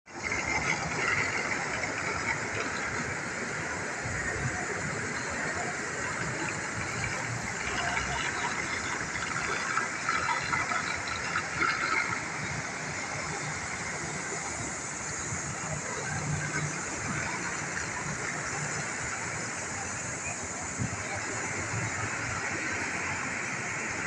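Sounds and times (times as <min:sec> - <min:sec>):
water flowing over stone tiles: 0:00.1 - 0:24.0.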